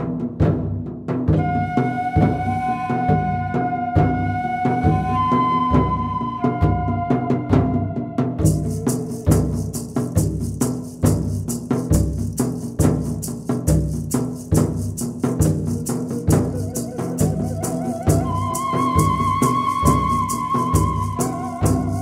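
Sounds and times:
background music with drum beat: 0.0s - 22.0s.

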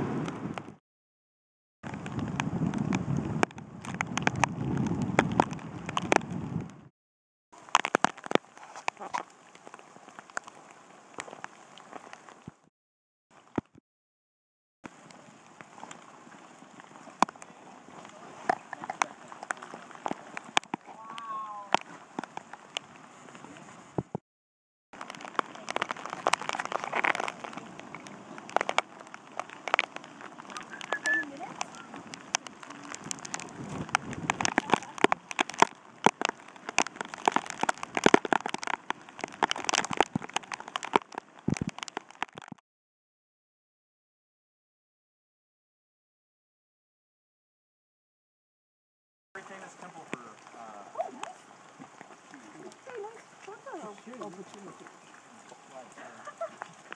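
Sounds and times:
raindrops ticking close by: 1.8s - 6.9s, 7.6s - 12.7s, 14.9s - 24.2s, 25.0s - 42.6s, 49.4s - 56.9s
steady rain: 1.8s - 6.9s, 7.6s - 12.7s, 14.9s - 24.2s, 25.0s - 42.6s, 49.4s - 56.9s.

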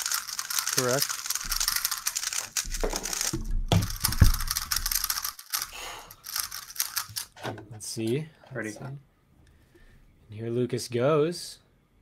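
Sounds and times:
speed cube clicking: 0.0s - 7.3s.

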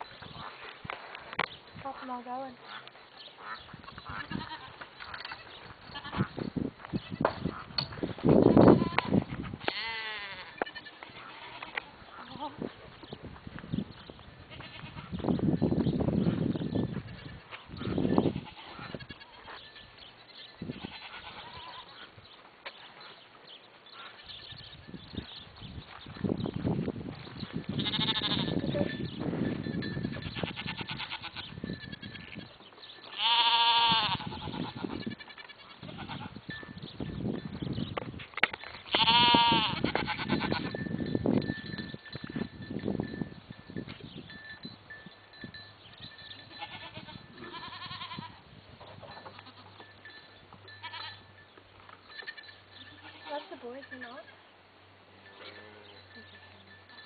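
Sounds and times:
goat bleating: 3.4s - 6.4s, 8.4s - 12.6s, 14.5s - 15.1s, 17.0s - 19.6s, 20.7s - 22.1s, 27.7s - 29.0s, 30.1s - 32.5s, 33.1s - 36.4s, 38.9s - 40.8s, 46.5s - 48.4s, 49.1s - 49.8s, 50.7s - 51.3s, 52.1s - 53.6s.

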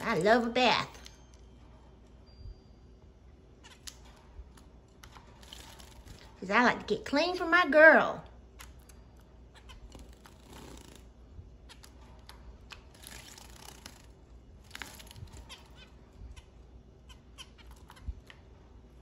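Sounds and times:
wings fluttering: 3.6s - 6.5s, 8.6s - 18.5s.

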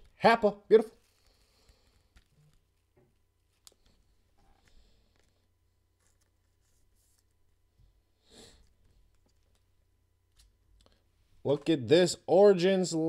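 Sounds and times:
card rustling in plastic sleeve: 1.0s - 7.6s.

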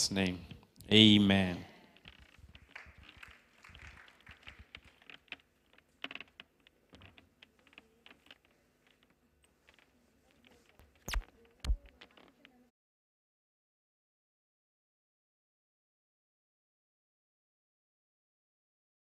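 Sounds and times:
faint clicks and taps: 1.9s - 12.7s.

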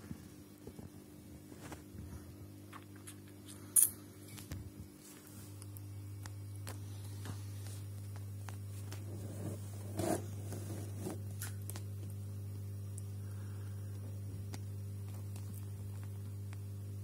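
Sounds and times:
handling rubbing and scraping: 8.6s - 11.3s.

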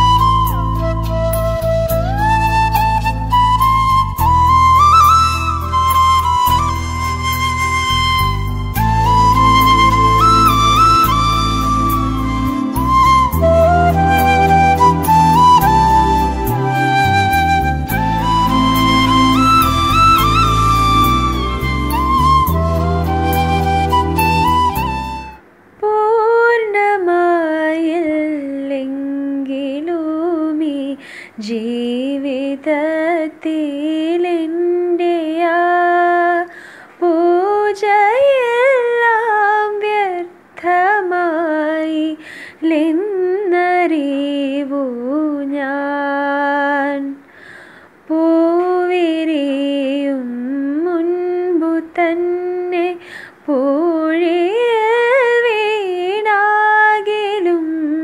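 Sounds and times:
woman singing unaccompanied: 22.0s - 47.3s, 48.0s - 58.0s.

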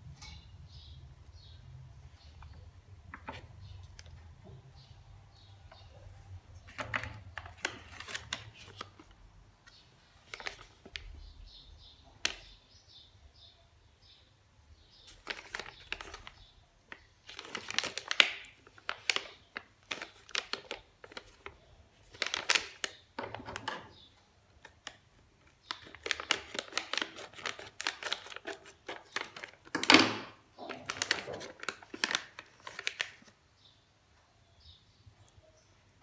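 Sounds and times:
foil pouch crinkling: 7.0s - 9.2s, 10.2s - 11.1s, 15.1s - 23.1s, 24.6s - 30.0s, 30.6s - 33.4s
foil pouch tearing open: 15.1s - 16.4s, 17.3s - 21.5s, 22.1s - 23.0s, 25.6s - 29.8s, 30.8s - 33.3s.

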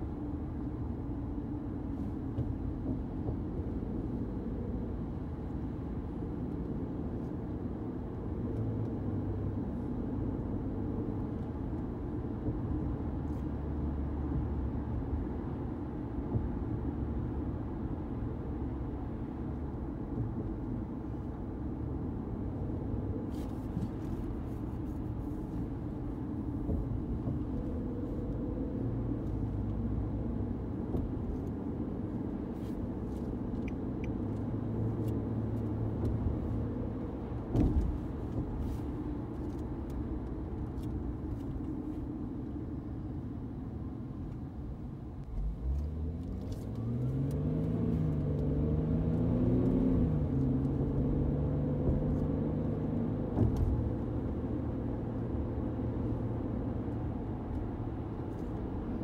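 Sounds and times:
car road and engine rumble: 0.0s - 59.0s
thump: 37.5s - 38.5s.

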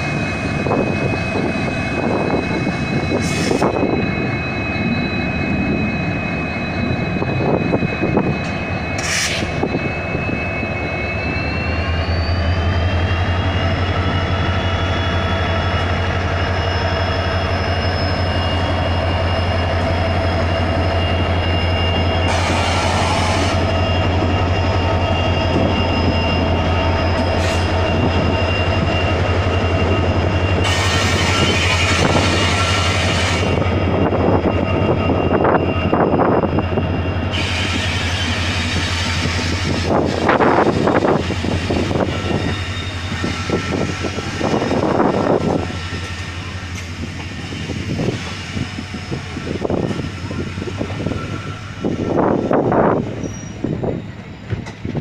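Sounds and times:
locomotive engine drone and whine: 0.0s - 55.0s
train wheels clattering on rail joints: 52.6s - 55.0s.

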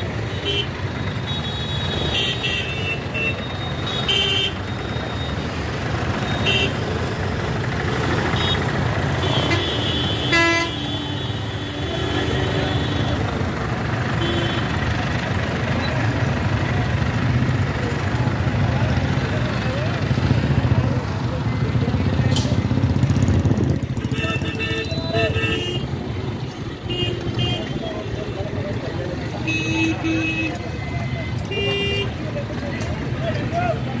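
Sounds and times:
diesel crane engines running: 3.0s - 25.2s.

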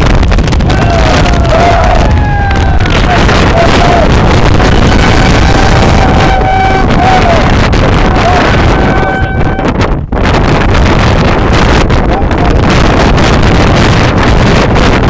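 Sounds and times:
wind buffeting microphone: 0.0s - 15.0s
people whooping and cheering: 0.7s - 9.8s.

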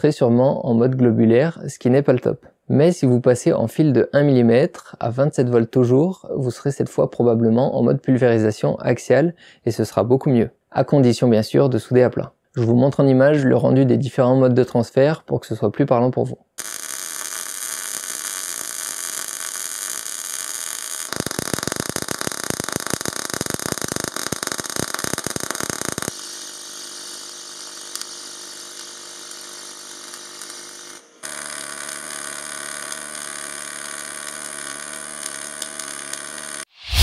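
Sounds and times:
welding arc buzzing: 16.6s - 37.0s
welding arc crackling and popping: 16.6s - 37.0s
welding arc hissing: 16.6s - 37.0s.

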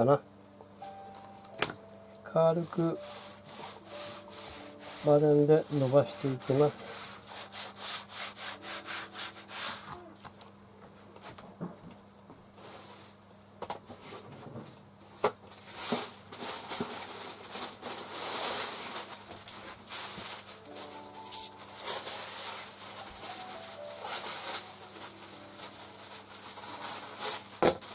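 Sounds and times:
baren scrubbing paper: 2.5s - 10.2s, 15.6s - 27.9s
paper rustles: 2.6s - 10.3s, 15.1s - 27.9s.

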